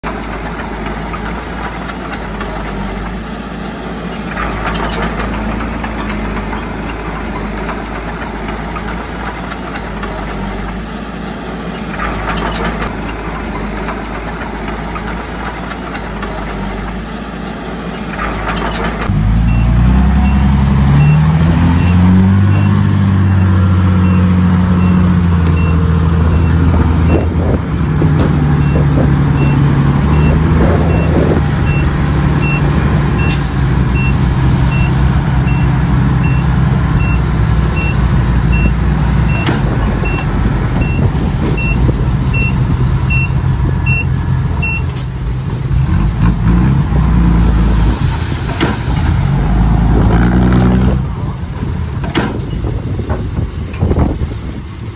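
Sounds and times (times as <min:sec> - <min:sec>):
diesel engine revving: 0:00.0 - 0:54.9
reversing alarm beeping: 0:19.5 - 0:25.0, 0:28.6 - 0:33.4, 0:34.0 - 0:37.2, 0:37.8 - 0:44.9.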